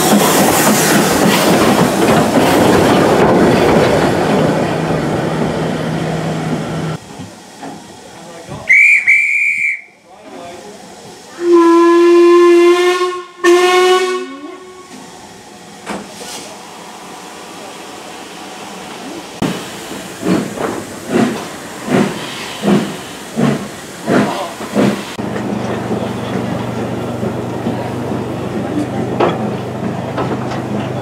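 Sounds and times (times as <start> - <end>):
loud steam hiss: 0.0 - 25.2
short high whistle blast: 8.7 - 10.0
steam locomotive whistle: 8.7 - 10.1, 11.3 - 15.0.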